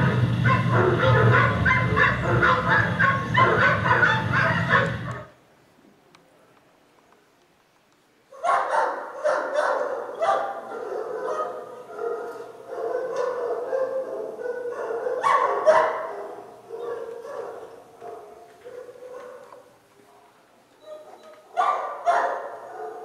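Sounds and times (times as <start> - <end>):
dogs barking and yelping: 0.0 - 5.4, 8.3 - 19.8, 20.8 - 23.0.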